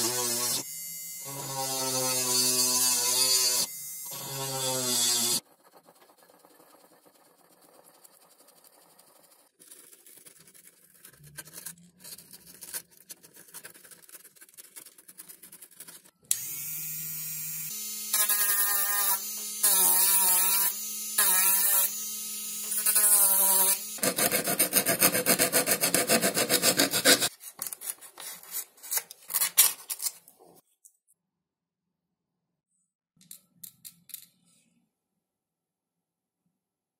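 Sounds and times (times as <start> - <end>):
scratching foam: 4.6 - 16.2, 24.0 - 30.6
utility knife cutting foam: 22.7 - 27.4.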